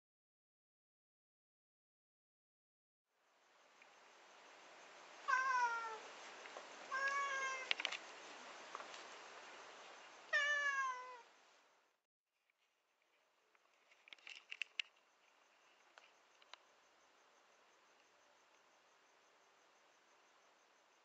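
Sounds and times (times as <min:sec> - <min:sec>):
cat meowing: 0:05.3 - 0:06.0, 0:06.9 - 0:07.7, 0:10.3 - 0:11.3
faint clicks: 0:06.4 - 0:08.1, 0:08.7 - 0:09.2, 0:12.4 - 0:16.7.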